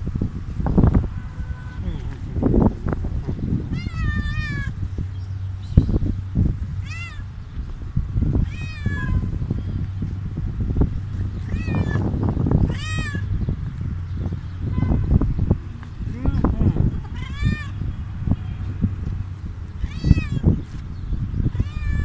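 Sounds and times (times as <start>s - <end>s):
cat meowing: 3.7s - 4.8s, 6.8s - 7.2s, 8.4s - 9.4s, 11.4s - 12.0s, 12.6s - 13.3s, 17.0s - 17.9s, 19.8s - 20.5s, 21.5s - 22.0s.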